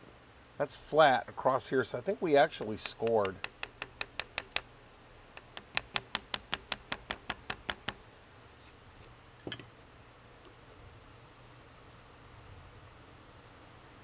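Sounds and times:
rapid sharp clicks: 0:02.8 - 0:04.7.

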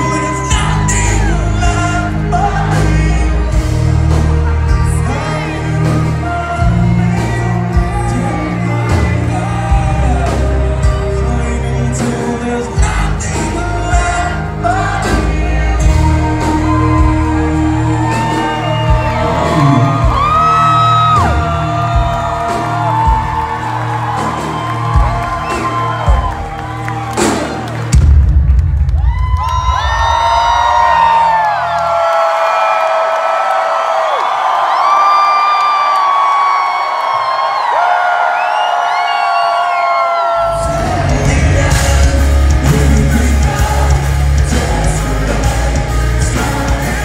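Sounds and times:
audience whooping: 0:00.0 - 0:10.4, 0:14.6 - 0:47.0
singer holding long notes: 0:00.0 - 0:27.9
live rock band: 0:00.0 - 0:32.0, 0:38.8 - 0:47.0.

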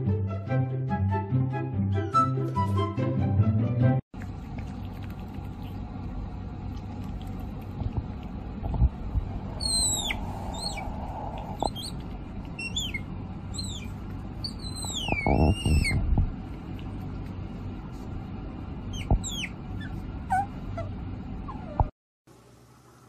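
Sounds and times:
otter squeaky chirps: 0:09.5 - 0:16.0, 0:18.9 - 0:20.9.

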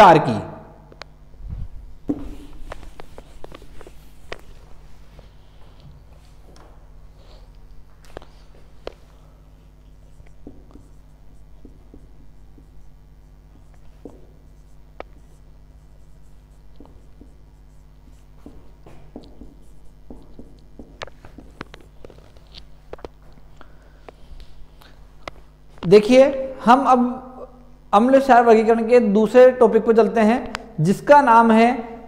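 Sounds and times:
low electrical hum: 0:00.0 - 0:32.0
marker writing on whiteboard: 0:02.1 - 0:05.4, 0:09.7 - 0:23.1.

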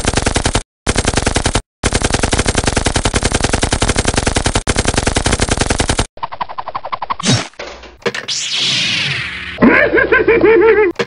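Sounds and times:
machine-gun fire bursts: 0:00.0 - 0:06.1.

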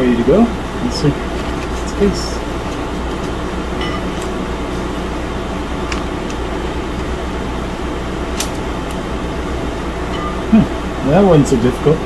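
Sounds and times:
fan-like room hum: 0:00.0 - 0:12.0.

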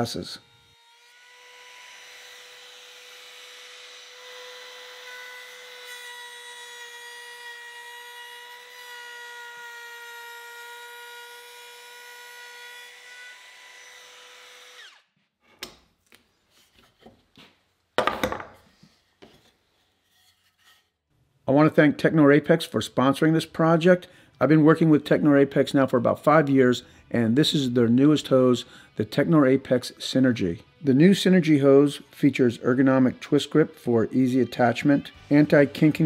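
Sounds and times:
router cutting wood: 0:00.0 - 0:15.1
router winding down: 0:14.6 - 0:15.0.

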